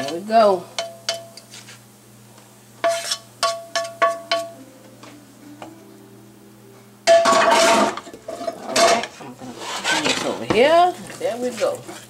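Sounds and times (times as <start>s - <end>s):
food scraped from skillet: 2.8s - 3.3s, 7.5s - 12.0s
clatter and scraping: 7.3s - 10.5s.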